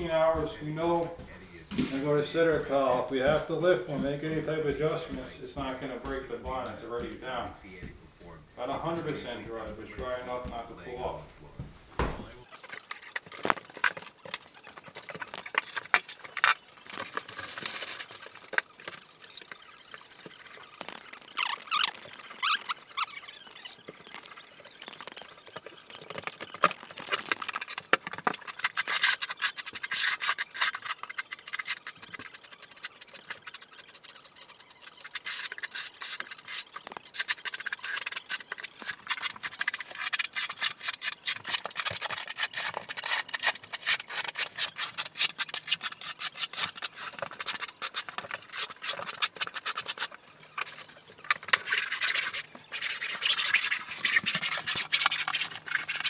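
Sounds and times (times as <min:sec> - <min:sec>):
hand tool scraping floor: 0:12.5 - 0:56.0.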